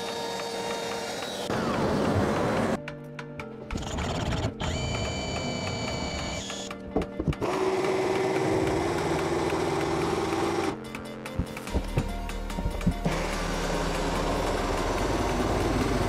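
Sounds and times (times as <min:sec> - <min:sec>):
electric jigsaw cutting: 0:00.0 - 0:02.8, 0:03.8 - 0:06.7, 0:07.4 - 0:10.8, 0:13.0 - 0:16.0
cordless drill whining: 0:03.8 - 0:06.7.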